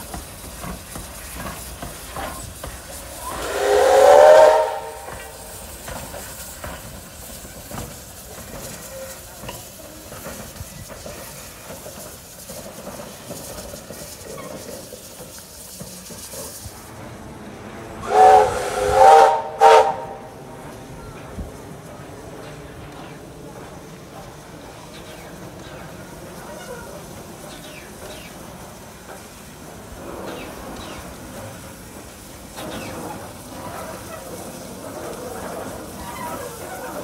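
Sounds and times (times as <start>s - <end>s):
steam hissing from locomotive: 0.0s - 37.0s
steam locomotive whistle blasts: 3.1s - 5.8s, 18.0s - 20.4s.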